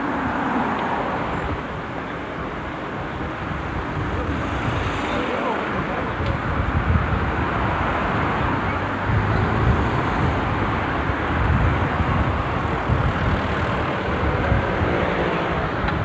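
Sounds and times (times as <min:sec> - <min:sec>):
cars driving past: 0:03.5 - 0:16.0.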